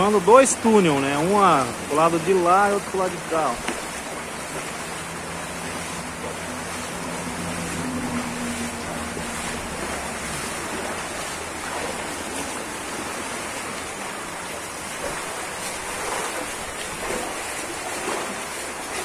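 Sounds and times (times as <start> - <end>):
stream water rushing: 0.0 - 19.0.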